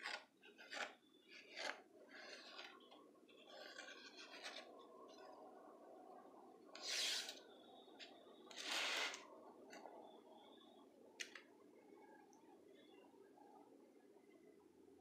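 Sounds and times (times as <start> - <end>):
pencil scratching on plywood: 0.0 - 4.8, 6.8 - 7.4, 8.5 - 9.2.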